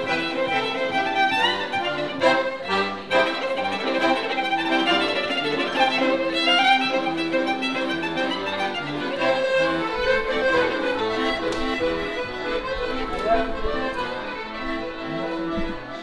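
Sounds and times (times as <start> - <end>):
accordion chords: 0.0 - 16.0
violin melody: 0.0 - 16.0.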